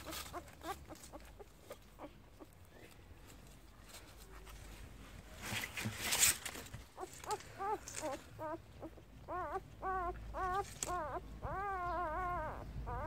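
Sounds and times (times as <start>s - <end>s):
puppies squeaking and whining: 0.0s - 2.9s, 6.8s - 13.0s
rustle of bedding: 0.0s - 8.5s.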